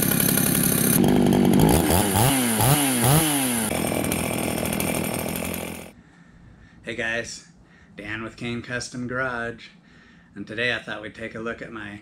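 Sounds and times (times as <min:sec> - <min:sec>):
chainsaw revving: 0:00.0 - 0:06.0.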